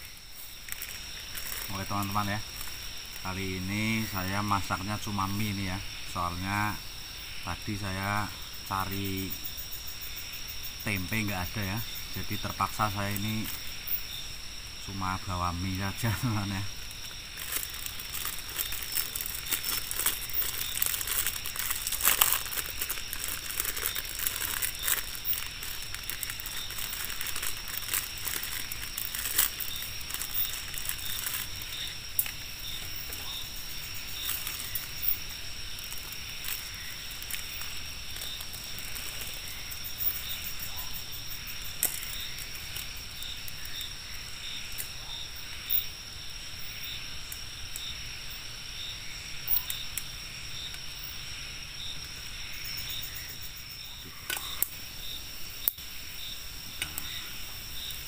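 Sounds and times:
high insect drone: 0:00.0 - 0:58.0
plastic packaging crinkling: 0:00.6 - 0:04.3, 0:15.7 - 0:40.3.

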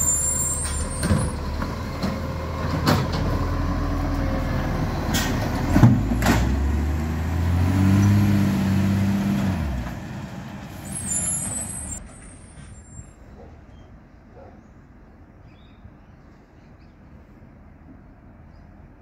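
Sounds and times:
garbage truck diesel engine: 0:00.0 - 0:13.5.

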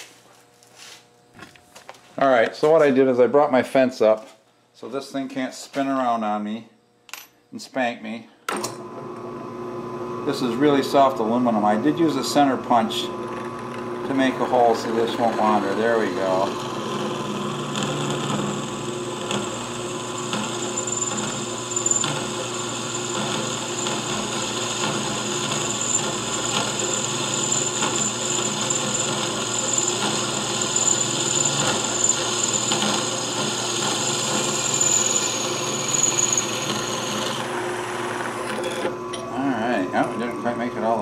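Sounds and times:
drill press running: 0:08.5 - 0:41.0
high squeal from drilling metal: 0:20.0 - 0:37.5.

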